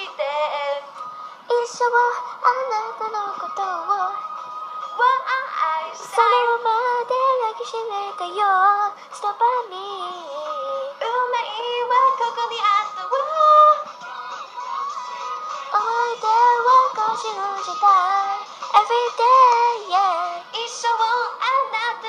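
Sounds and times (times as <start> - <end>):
young female voices singing pop: 0.0 - 14.0, 15.7 - 22.0.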